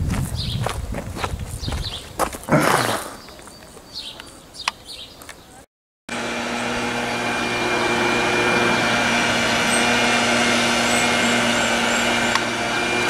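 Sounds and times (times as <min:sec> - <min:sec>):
machine drone with rushing hiss: 0:07.7 - 0:13.0.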